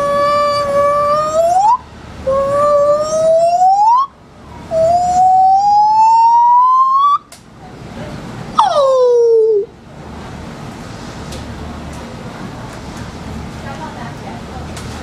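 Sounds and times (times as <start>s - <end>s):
gibbon hooting: 0.0s - 4.1s, 4.7s - 7.3s, 8.6s - 9.7s.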